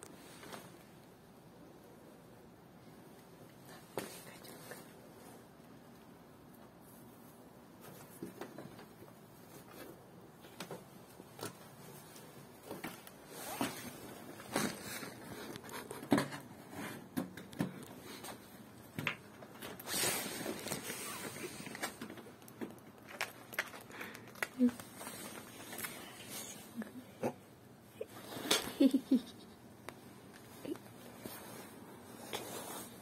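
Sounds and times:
cloth rustling and scratching: 0:11.1 - 0:17.1, 0:30.3 - 0:33.0.

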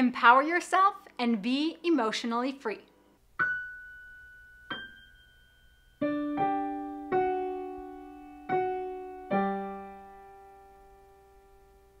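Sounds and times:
slow solo piano: 0:03.4 - 0:12.0.

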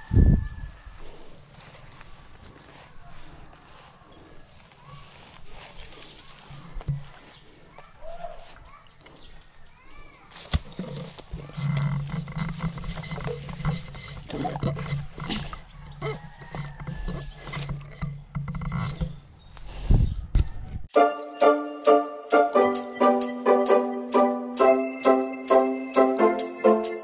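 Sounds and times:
leaves rustling underfoot: 0:00.0 - 0:18.0.

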